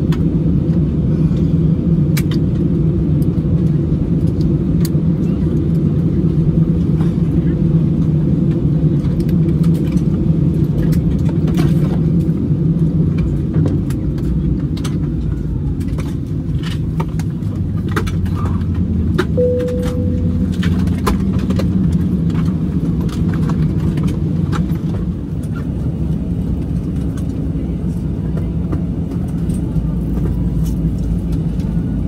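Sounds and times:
moving vehicle rumble: 0.0s - 32.0s
brief beep: 19.4s - 21.2s.

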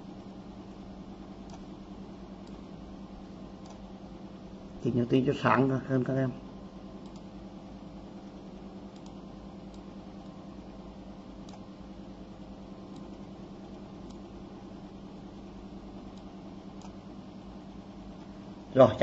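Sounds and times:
low electrical hum: 0.0s - 19.0s
faint clicks: 7.0s - 7.3s, 8.9s - 10.4s, 12.9s - 13.3s.

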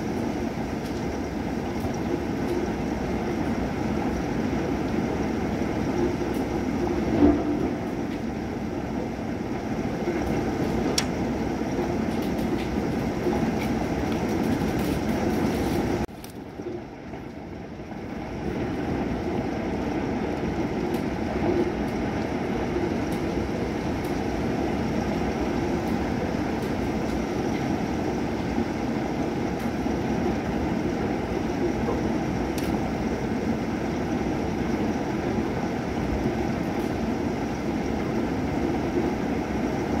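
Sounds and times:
thunder rumbling: 0.0s - 16.0s.

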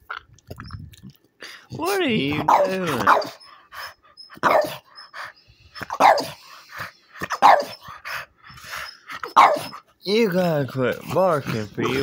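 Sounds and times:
dog barking: 2.4s - 3.4s, 4.4s - 4.8s, 5.8s - 6.4s, 7.3s - 7.8s, 9.2s - 9.8s.

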